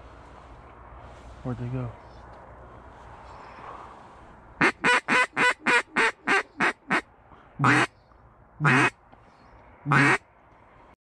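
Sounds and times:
duck quacking: 0:04.6 - 0:07.0, 0:07.6 - 0:07.9, 0:08.6 - 0:08.9, 0:09.9 - 0:10.2.

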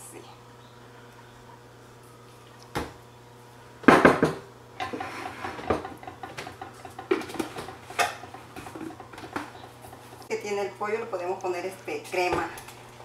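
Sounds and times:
dishes clinking and knocking: 0:03.8 - 0:10.3.

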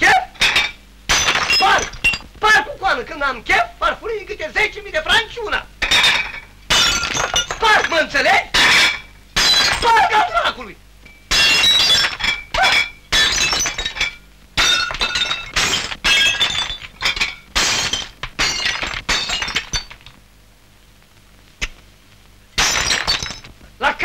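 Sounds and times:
porcelain plates smashing: 0:00.4 - 0:02.3, 0:05.8 - 0:10.4, 0:11.1 - 0:20.2, 0:22.6 - 0:23.5.

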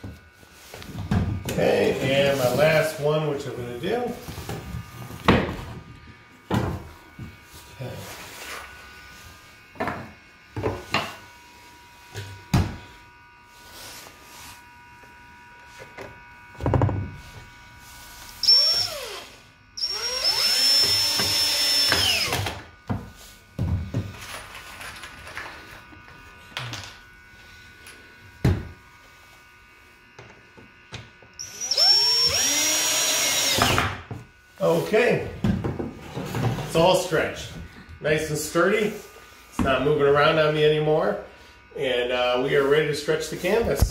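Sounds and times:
cordless drill driving screws: 0:18.4 - 0:22.6, 0:31.4 - 0:34.0.

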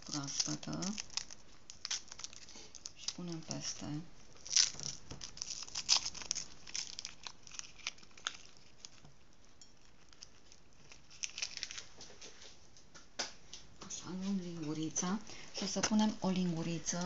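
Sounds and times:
yeast crinkling in hands: 0:00.0 - 0:12.6.

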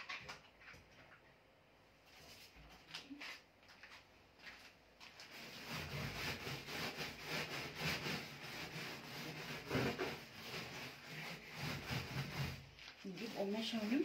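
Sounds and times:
hand scrubbing metal panel: 0:05.3 - 0:14.0.

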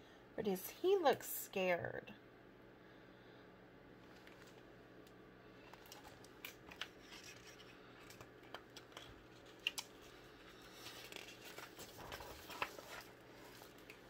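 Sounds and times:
paper pages rustling: 0:05.6 - 0:14.0.

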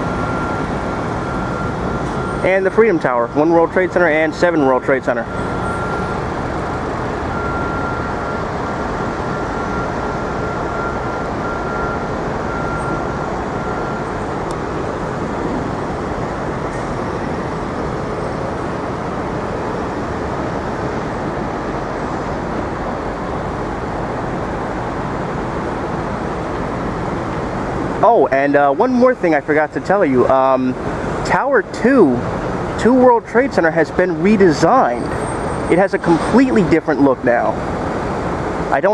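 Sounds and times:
street traffic rumble: 0:00.0 - 0:38.9.

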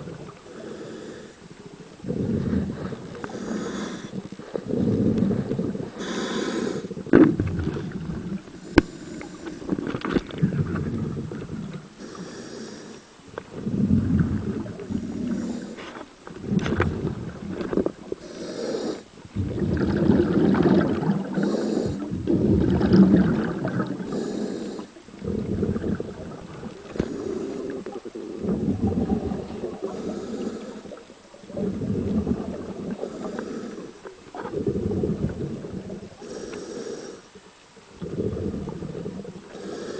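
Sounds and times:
air hiss on inhale: 0:00.4 - 0:07.1, 0:08.4 - 0:09.8, 0:11.8 - 0:13.9, 0:14.8 - 0:16.6, 0:18.2 - 0:19.2, 0:21.3 - 0:22.2, 0:24.0 - 0:25.4, 0:26.8 - 0:28.8, 0:29.4 - 0:31.9, 0:32.9 - 0:35.4, 0:36.0 - 0:39.9
gurgling exhaled bubbles: 0:01.6 - 0:12.0, 0:13.3 - 0:18.3, 0:19.2 - 0:36.3, 0:37.8 - 0:39.9.

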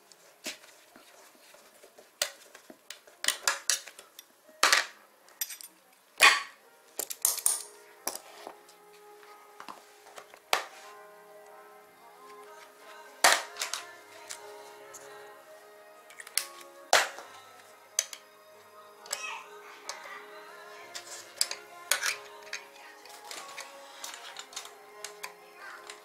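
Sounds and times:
metal tools clinking in plastic tray: 0:07.0 - 0:08.3, 0:21.0 - 0:26.0.

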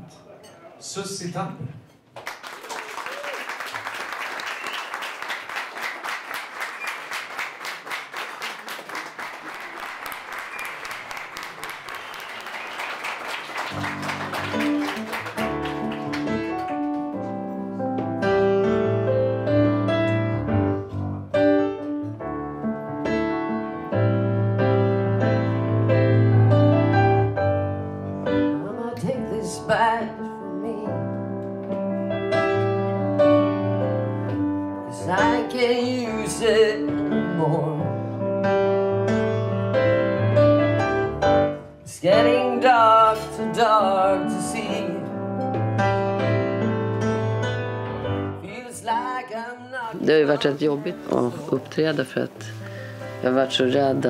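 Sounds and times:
audience clapping: 0:02.0 - 0:17.3
piano playing: 0:09.6 - 0:54.0.

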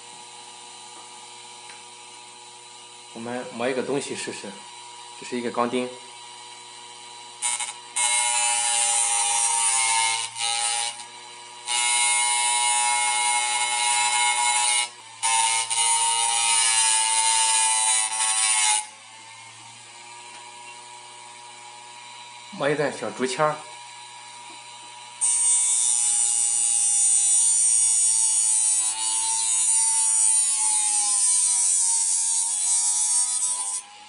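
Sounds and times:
hard drive motor whine: 0:00.0 - 0:08.0, 0:18.9 - 0:25.3
nail grinding on sandpaper: 0:25.2 - 0:33.8.

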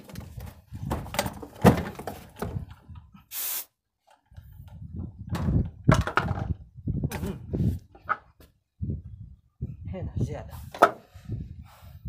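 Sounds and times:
short burst of hiss: 0:03.3 - 0:03.7.

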